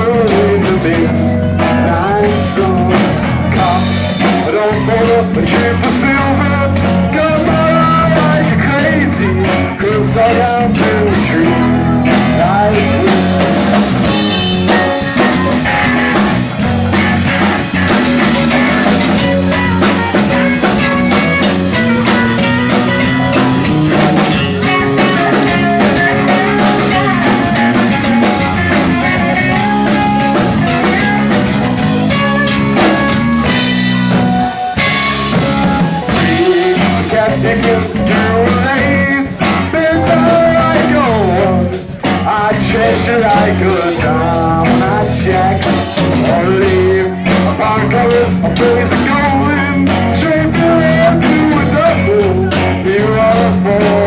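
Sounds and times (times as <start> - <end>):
drum kit: 0.0 - 54.0
electric guitars: 0.0 - 54.0
keyboard: 0.0 - 54.0.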